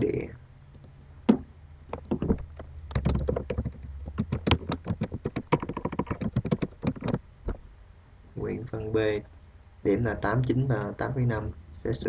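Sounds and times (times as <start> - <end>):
keyboard typing clicks: 0.7 - 7.2.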